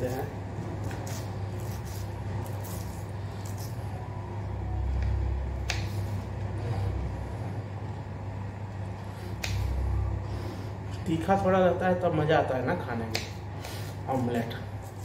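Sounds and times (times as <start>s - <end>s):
steady low rumble: 0.0s - 11.1s
knife slicing on cutting board: 0.1s - 3.8s.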